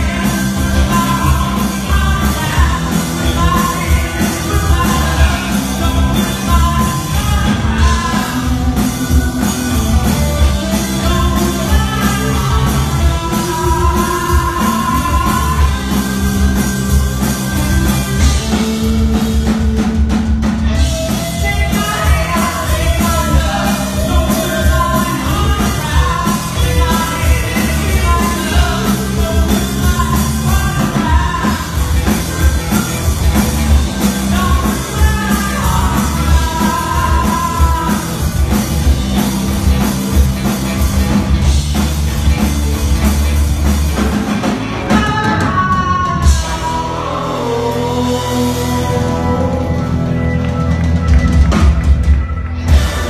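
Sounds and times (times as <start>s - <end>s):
rock song with lead vocal: 0.0s - 53.0s.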